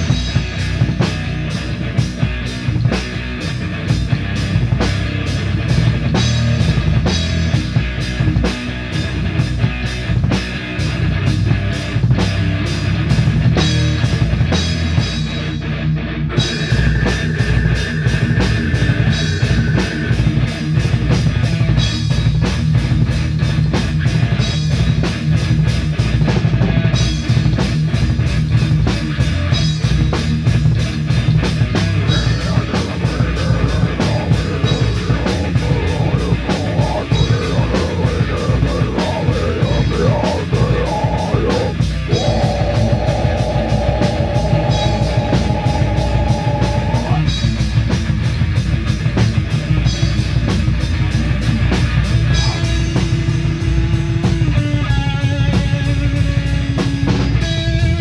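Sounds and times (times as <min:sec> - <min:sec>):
rock band playing live: 0:00.0 - 0:58.0
dense drumming: 0:16.4 - 0:54.7.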